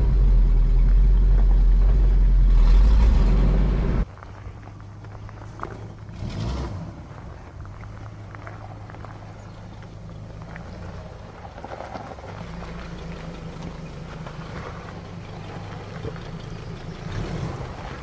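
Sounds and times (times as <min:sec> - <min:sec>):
truck engine running at low revs: 0:00.0 - 0:18.0
stones crunching under tyres: 0:04.0 - 0:18.0.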